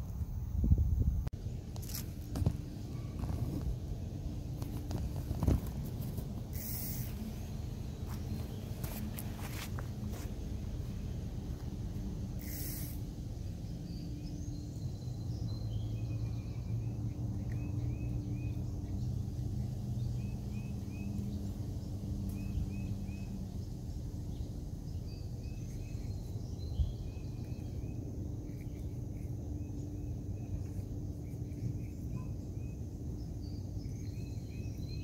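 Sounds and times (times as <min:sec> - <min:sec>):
faint insect drone: 0:00.0 - 0:35.0
low steady hum: 0:00.0 - 0:35.0
bird chirping: 0:12.4 - 0:35.0.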